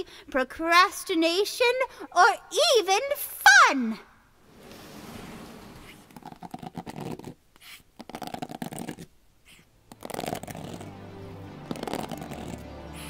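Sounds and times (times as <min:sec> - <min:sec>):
music: 0:09.9 - 0:13.0.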